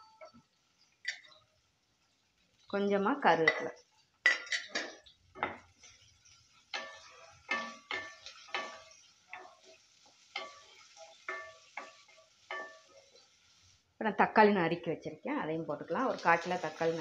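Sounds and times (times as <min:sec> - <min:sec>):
light sizzle: 0:00.0 - 0:17.0
spatula scraping and knocking pan: 0:04.3 - 0:13.3.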